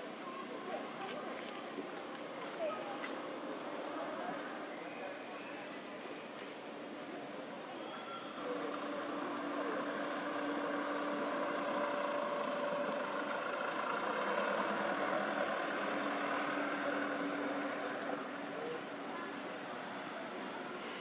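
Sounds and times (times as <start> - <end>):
vehicle engine droning: 8.3 - 21.0.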